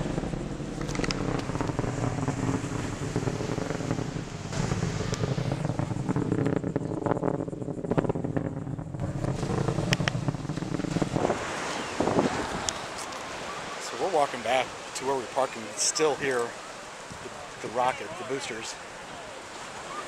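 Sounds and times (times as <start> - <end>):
distant rocket engine rumble: 0.0 - 20.0.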